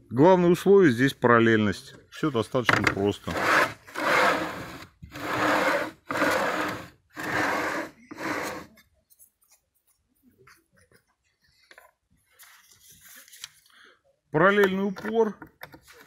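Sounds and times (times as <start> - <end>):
plywood top rolling on rail slides: 2.7 - 8.7.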